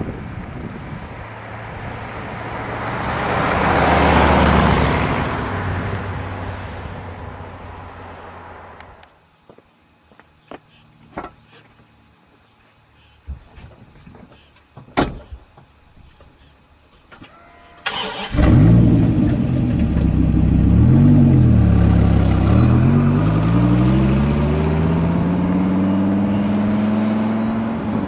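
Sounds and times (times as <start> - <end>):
car engine starting and accelerating: 1.4 - 8.4, 17.8 - 28.0.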